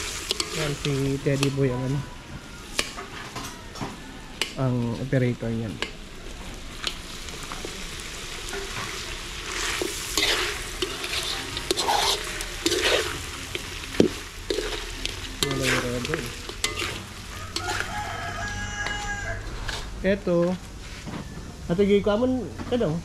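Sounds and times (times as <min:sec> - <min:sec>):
metal spatula scraping wok: 0:00.0 - 0:03.5, 0:08.4 - 0:20.1
meat sizzling in wok: 0:00.0 - 0:22.2
spatula clinking on pan: 0:16.5 - 0:17.9.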